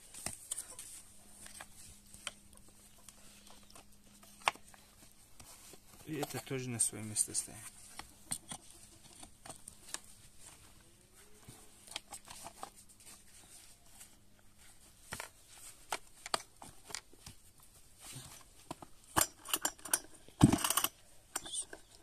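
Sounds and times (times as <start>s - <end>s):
rattling clicks: 19.2s - 21.6s.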